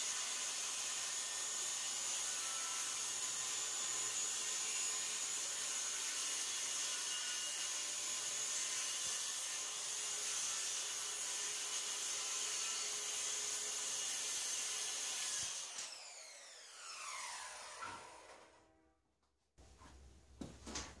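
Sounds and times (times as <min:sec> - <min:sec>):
circular saw cutting plywood: 0:00.0 - 0:18.8
saw blade spinning down: 0:15.2 - 0:18.8.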